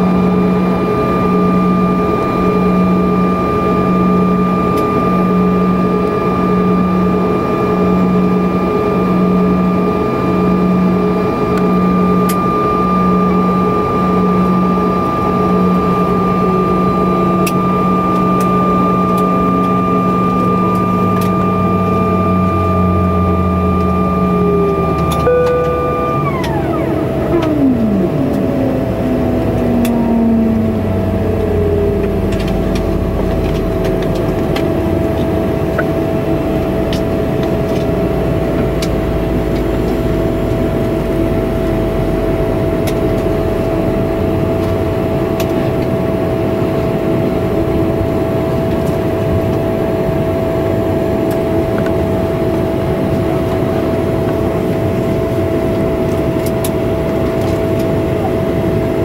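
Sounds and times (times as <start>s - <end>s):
jet engine whine: 0.0s - 59.0s
deep rumble: 15.4s - 46.2s.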